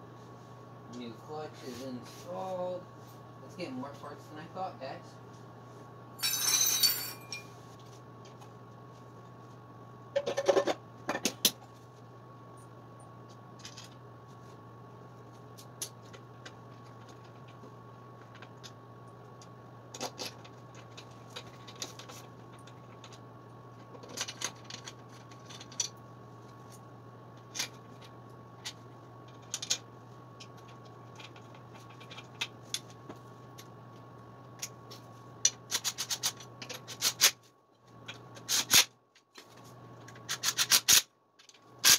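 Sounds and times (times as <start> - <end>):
low background hum: 0.0 - 41.9
metal tools clinking: 6.2 - 7.6.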